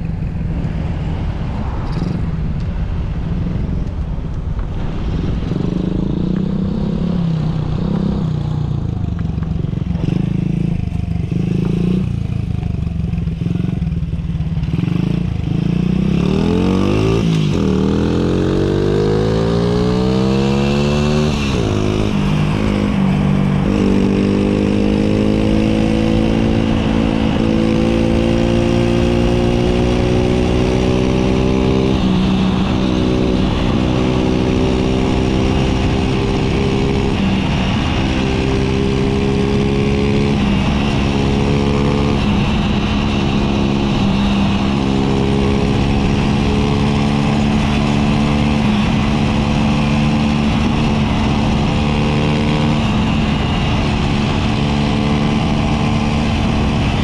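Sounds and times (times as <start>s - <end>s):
small motorcycle engine revving: 14.6s - 57.0s.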